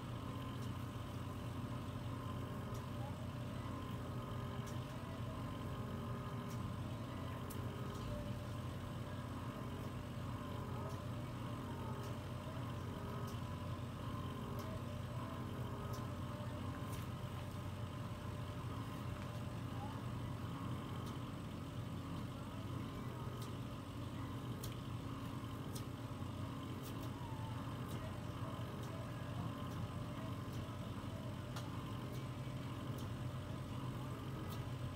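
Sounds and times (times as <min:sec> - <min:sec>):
suction pump humming: 0:00.0 - 0:34.9
faint ticks: 0:05.7 - 0:08.6, 0:09.7 - 0:17.6, 0:26.6 - 0:34.9.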